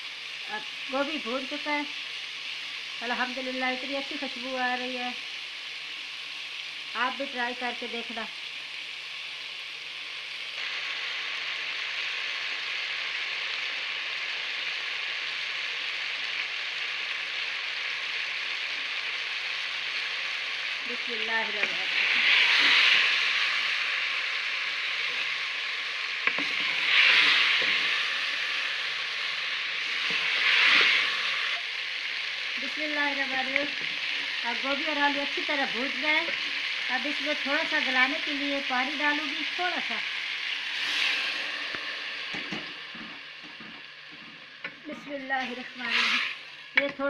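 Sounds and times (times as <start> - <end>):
vegetables sizzling in hot oil: 0.0 - 47.0
wooden spoon stirring vegetables: 26.2 - 28.7.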